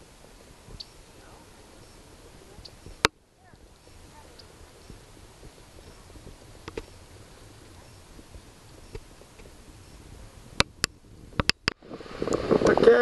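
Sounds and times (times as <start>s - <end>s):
low even rumble: 0.0s - 13.0s
faint high peeps: 4.0s - 5.0s.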